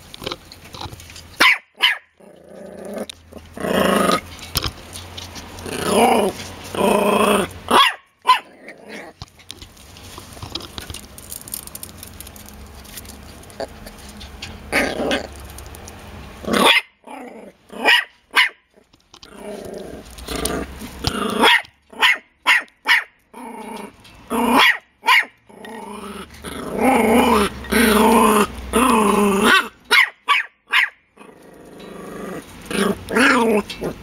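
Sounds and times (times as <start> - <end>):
puppies yapping: 1.3 - 2.2, 3.0 - 9.7
puppies growling: 2.1 - 18.0, 18.7 - 22.1, 23.2 - 24.6, 25.4 - 29.9, 31.1 - 34.0.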